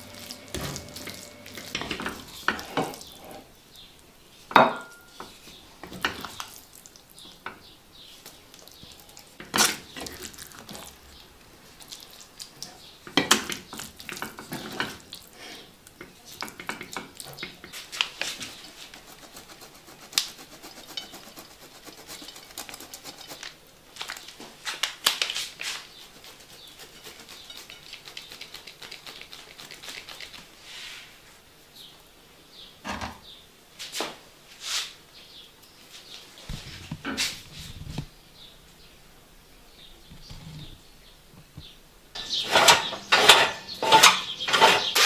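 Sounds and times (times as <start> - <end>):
pan plates and utensils clinking: 0.0 - 3.4, 42.2 - 45.0
cheese rasped over a grater: 18.2 - 23.6, 26.0 - 30.4.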